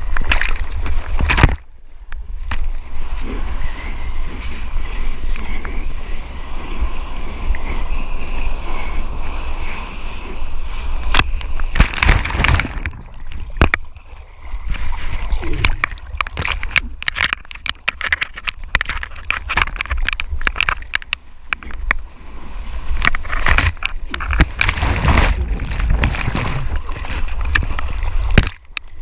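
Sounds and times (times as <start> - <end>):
water splashing against camera: 0.0 - 1.8, 10.8 - 22.1, 22.8 - 29.0.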